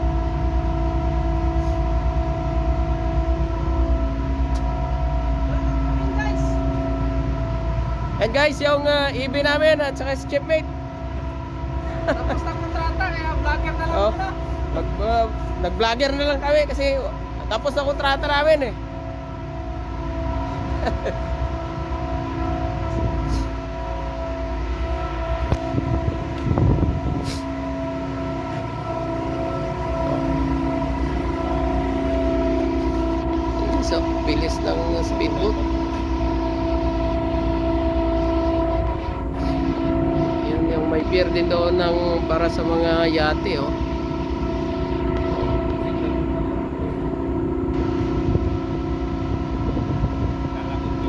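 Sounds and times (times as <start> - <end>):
ship machinery drone: 0.0 - 51.0
wind rumble on microphone: 20.5 - 51.0.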